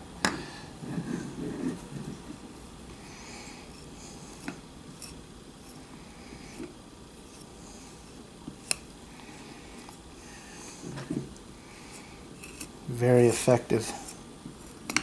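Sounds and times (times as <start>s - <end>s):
knife scraping hide: 12.4s - 12.7s.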